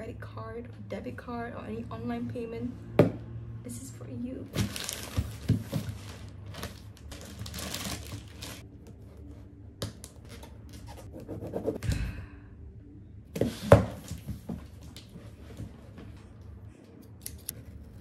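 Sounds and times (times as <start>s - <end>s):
packaging rustling and tearing: 4.5s - 8.6s.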